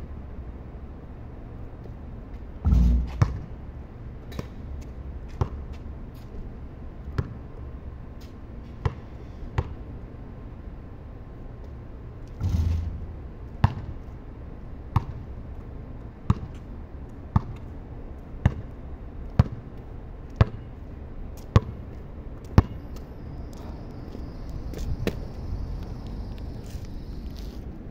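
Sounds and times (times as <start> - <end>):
ball hitting the hoop: 2.6 - 3.4, 12.4 - 13.9
basketball bouncing on concrete: 2.7 - 3.4, 5.3 - 5.8, 7.1 - 7.4, 8.8 - 9.0, 9.6 - 9.8, 13.6 - 14.0, 15.0 - 15.3, 16.3 - 16.6, 17.3 - 17.7, 18.4 - 18.8, 19.4 - 19.6, 20.3 - 20.6, 21.4 - 21.8, 22.4 - 22.8.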